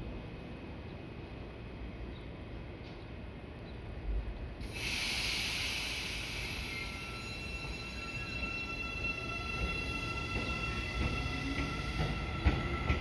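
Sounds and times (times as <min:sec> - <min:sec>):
sudden hiss: 0:04.6 - 0:08.2
electric train whining: 0:04.7 - 0:13.0.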